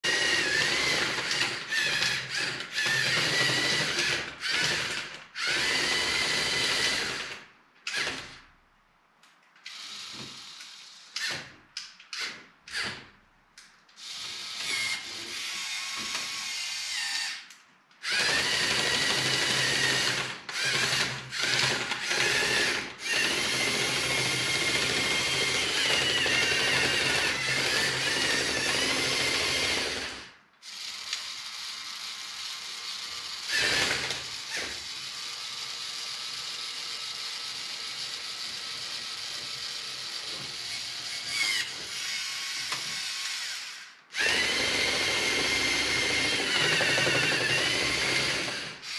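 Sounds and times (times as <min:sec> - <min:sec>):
toy electric motors whirring: 0:14.0 - 0:17.5, 0:25.7 - 0:48.9.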